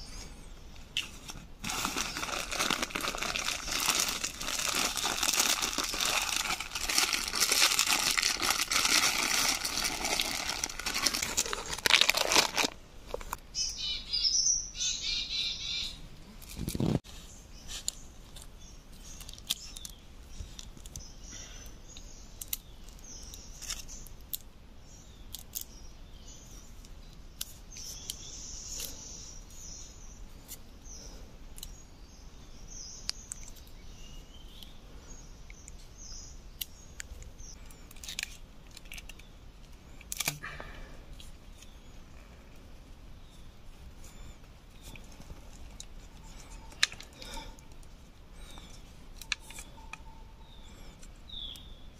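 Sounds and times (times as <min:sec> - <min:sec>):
hands handling rubber bands: 0:00.8 - 0:13.4
branch rustling over dry leaves: 0:00.9 - 0:13.4
birds chirping: 0:01.7 - 0:24.2, 0:24.8 - 0:38.1, 0:38.8 - 0:51.9.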